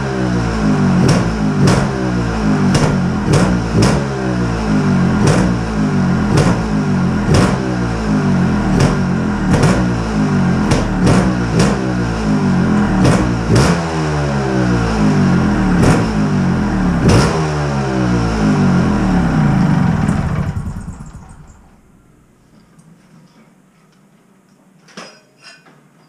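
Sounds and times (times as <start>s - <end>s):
motorcycle engine revving: 0.0s - 22.0s
sharp engine pops: 1.0s - 2.0s, 2.7s - 4.1s, 5.2s - 5.6s, 6.3s - 6.7s, 7.3s - 7.7s, 8.7s - 10.0s, 10.6s - 11.9s, 13.0s - 13.8s, 15.8s - 16.2s, 17.0s - 17.4s.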